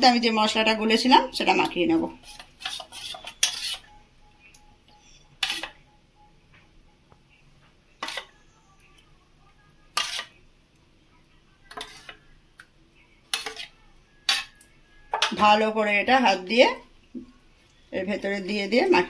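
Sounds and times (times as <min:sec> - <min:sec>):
spatula scraping steel bowl: 0:01.6 - 0:04.0, 0:05.4 - 0:05.8, 0:08.0 - 0:08.4, 0:09.9 - 0:10.4, 0:11.7 - 0:12.2, 0:13.3 - 0:15.6.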